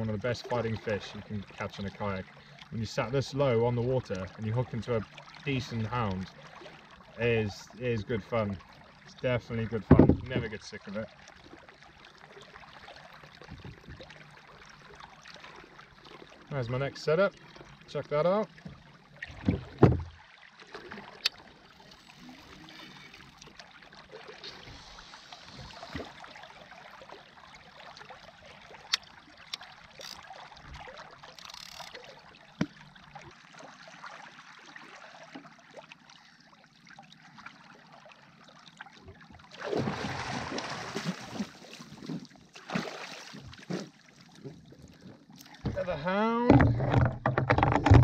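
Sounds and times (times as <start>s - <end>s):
water trickling and lapping: 0.0s - 48.0s
small clicks: 28.9s - 30.3s, 31.3s - 32.0s
fishing reel winding: 30.0s - 30.3s, 31.3s - 32.0s
splashing fish: 38.8s - 48.0s.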